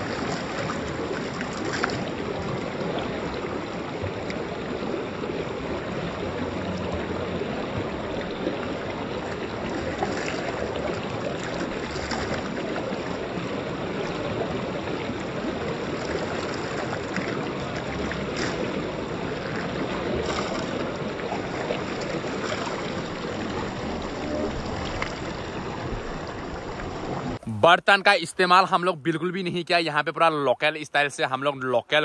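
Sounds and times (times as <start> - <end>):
hands scooping water: 0.0 - 2.8, 8.2 - 14.5, 15.2 - 26.0.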